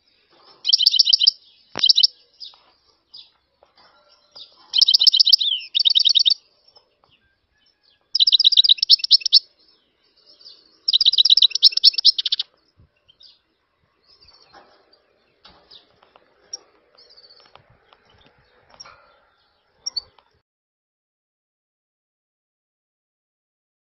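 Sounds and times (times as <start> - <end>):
faint bird chirps: 0.0 - 20.4
bird trilled twittering: 0.5 - 3.4, 4.2 - 20.3.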